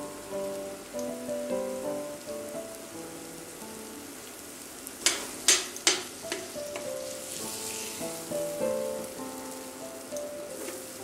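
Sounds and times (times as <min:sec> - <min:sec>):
soft background music: 0:00.0 - 0:05.4, 0:06.0 - 0:11.0
onion and tomato sizzling: 0:00.0 - 0:11.0
spoon knocking against pan: 0:05.0 - 0:06.9.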